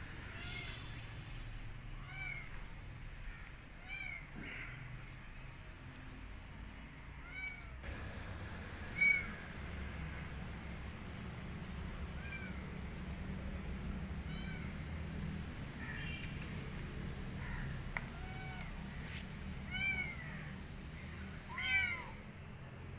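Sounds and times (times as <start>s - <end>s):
low steady rumble: 6.0s - 16.2s
kitten meowing: 9.0s - 9.3s.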